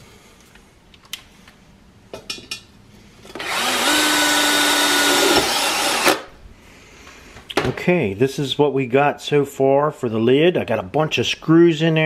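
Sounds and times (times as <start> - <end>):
cordless drill driving a screw: 3.3 - 6.3.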